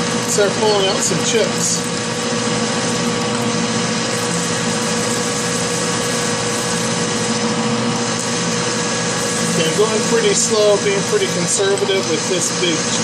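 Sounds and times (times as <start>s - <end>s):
metal lathe humming and whining: 0.0s - 13.0s.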